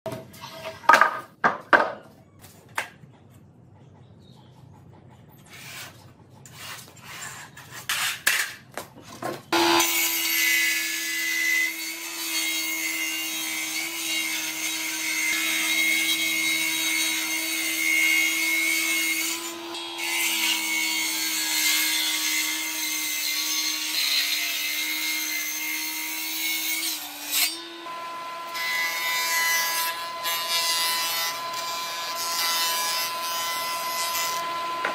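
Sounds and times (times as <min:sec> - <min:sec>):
jointer planer humming: 0:09.6 - 0:10.4, 0:27.0 - 0:34.9.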